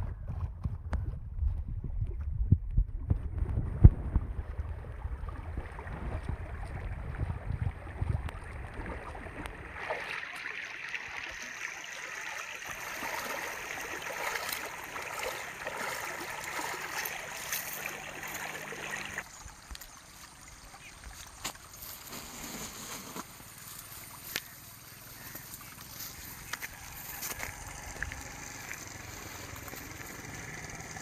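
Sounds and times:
low microphone rumble: 0.0 - 9.8
stream water rushing and splashing: 5.1 - 31.0.

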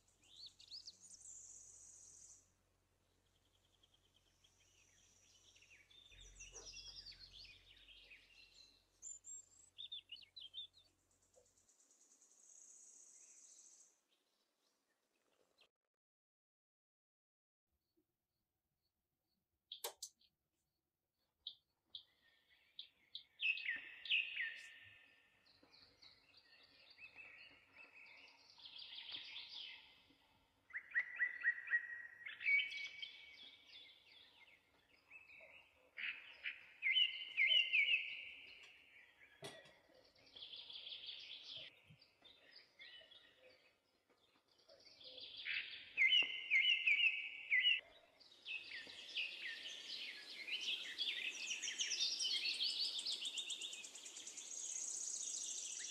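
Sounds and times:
songbirds singing: 0.0 - 15.7, 21.4 - 55.9.

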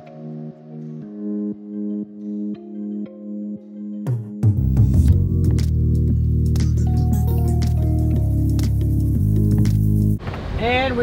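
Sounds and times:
sustained bass notes: 0.0 - 10.2.

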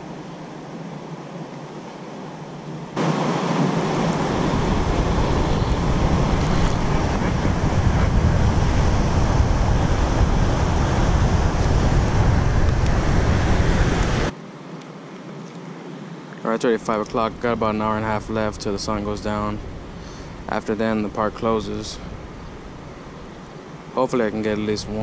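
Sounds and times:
wind buffeting microphone: 3.0 - 14.3, 17.0 - 25.0.

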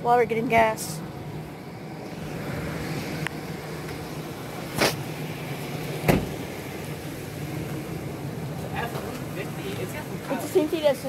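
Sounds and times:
vehicle engine idling: 0.0 - 11.0
loud thump: 6.0 - 6.4.

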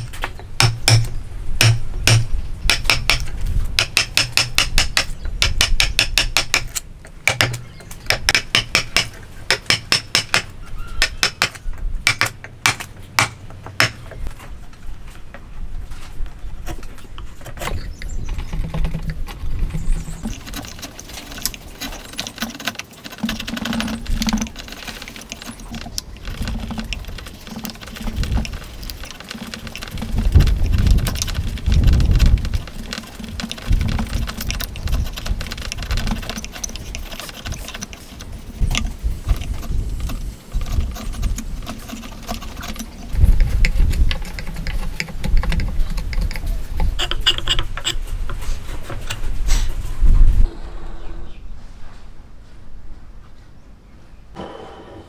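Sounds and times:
chisel scraping wood: 17.4 - 49.7.

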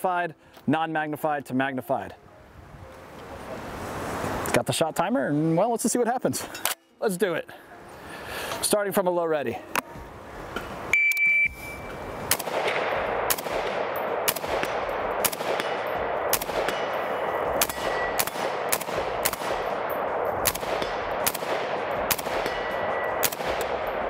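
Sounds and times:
shot timer beep: 10.9 - 12.0
rifle shots echoing: 12.2 - 24.0.

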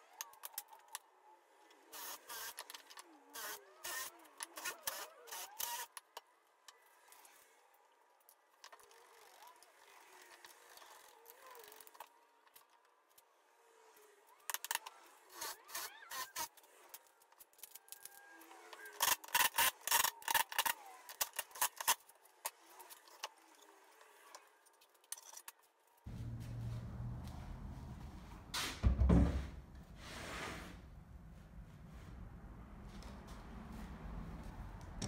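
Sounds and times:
clicks and knocks of wood and screws: 15.7 - 26.1
steady low hum: 26.1 - 30.0.

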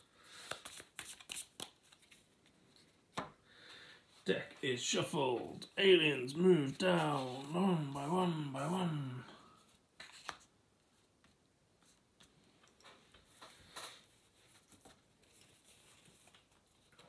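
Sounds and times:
playing cards rustling and tapping: 0.3 - 3.4.

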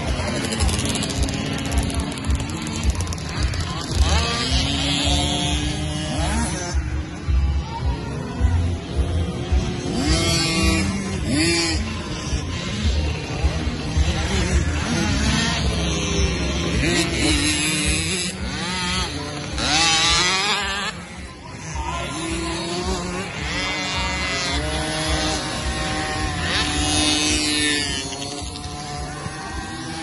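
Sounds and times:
motocross bikes revving: 0.0 - 30.0.

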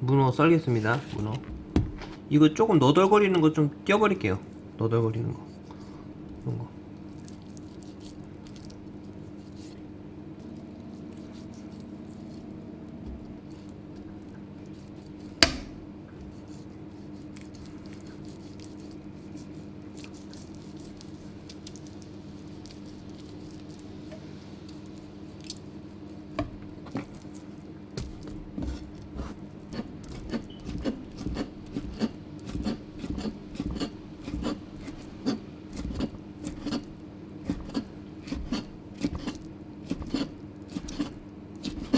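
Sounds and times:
steady low hum: 0.0 - 41.9
knife chopping on cutting board: 15.4 - 15.8, 28.0 - 41.9.

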